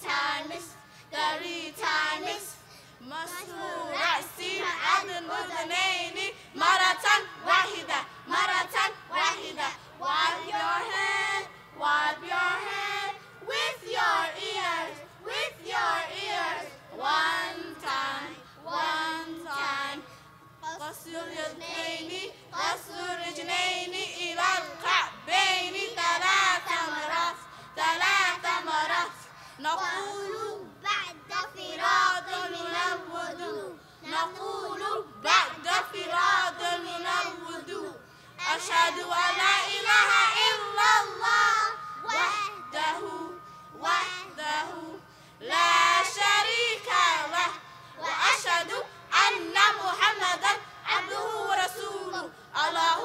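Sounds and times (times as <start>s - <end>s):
children singing: 3.3s - 20.0s, 29.9s - 53.0s.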